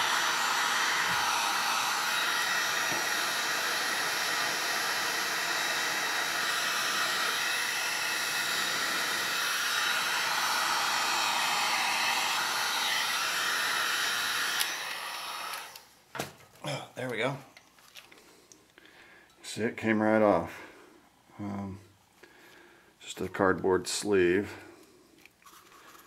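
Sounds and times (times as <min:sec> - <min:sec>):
heat gun blowing air: 0:00.0 - 0:15.9.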